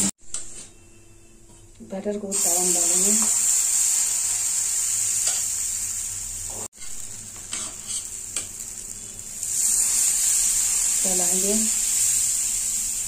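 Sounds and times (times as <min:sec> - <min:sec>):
batter sizzling in hot oil: 0:02.3 - 0:13.0
metal spatula scraping: 0:06.8 - 0:08.2.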